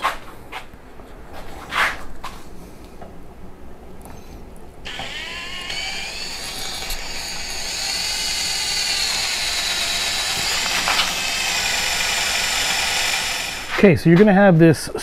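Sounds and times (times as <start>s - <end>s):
cordless drill whining: 4.8s - 13.8s.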